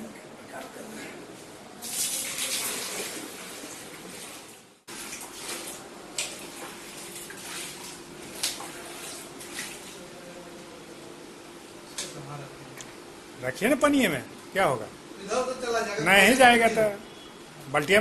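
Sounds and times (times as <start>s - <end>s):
water poured from bucket: 1.8s - 9.9s
water splashes: 1.8s - 10.1s.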